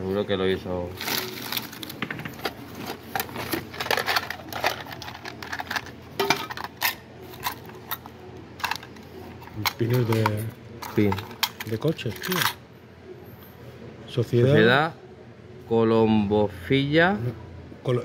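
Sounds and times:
newspaper rustling: 1.0 - 5.7.

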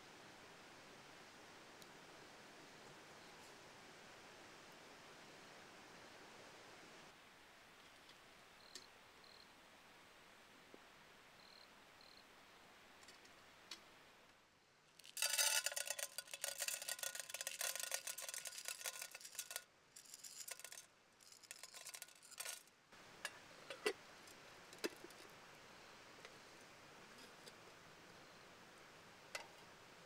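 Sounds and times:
popcorn kernels rattling into pot: 15.0 - 22.7.

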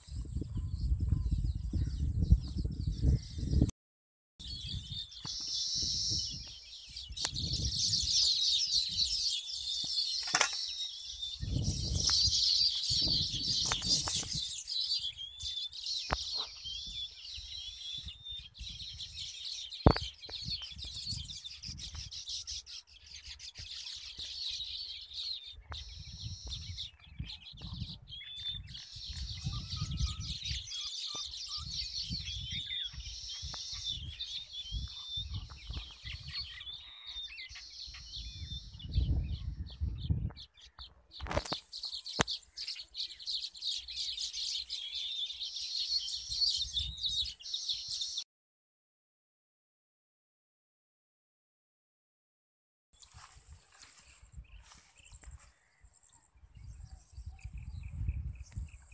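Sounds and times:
birds chirping in chorus: 0.0 - 3.7, 4.4 - 48.2, 53.0 - 58.9
sharp click: 10.2 - 10.7.

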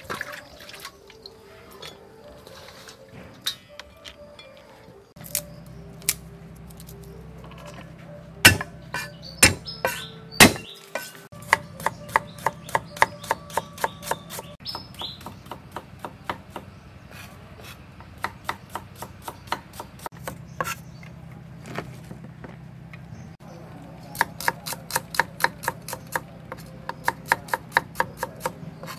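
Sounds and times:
knife chopping on wooden block: 8.4 - 20.8, 24.2 - 28.9.

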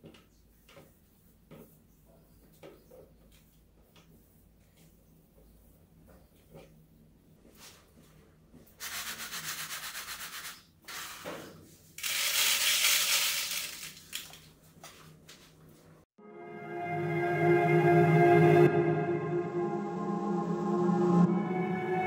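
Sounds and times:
grain pouring into plastic bottle: 12.0 - 14.3.

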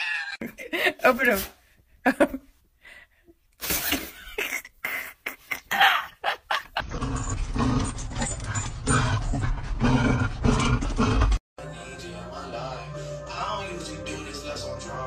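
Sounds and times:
dogs whining excitedly: 6.8 - 9.6.

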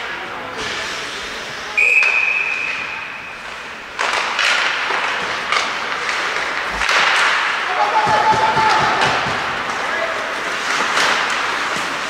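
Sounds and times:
skates and sticks scraping on ice: 0.6 - 12.0
referee's whistle blast: 1.8 - 3.0.

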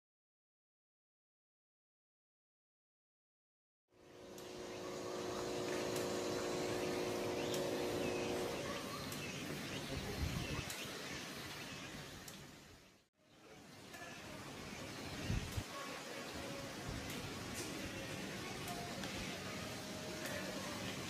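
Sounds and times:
mechanical hum: 3.9 - 21.0
distant voices: 4.1 - 11.2
birds chirping: 4.1 - 21.0.

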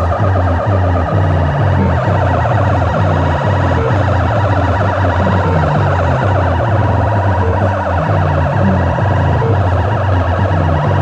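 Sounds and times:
loud music with heavy bass: 0.0 - 11.0.

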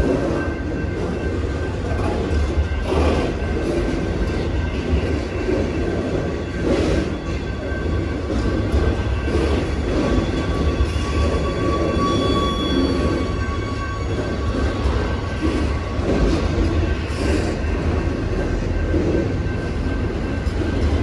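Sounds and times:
train cars rumbling on rails: 0.0 - 21.0
wheels squealing: 6.4 - 21.0.

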